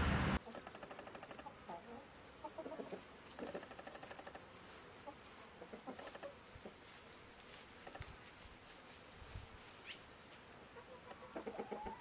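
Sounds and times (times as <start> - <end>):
chickens clucking softly: 0.4 - 4.4, 5.0 - 6.8, 10.7 - 12.0.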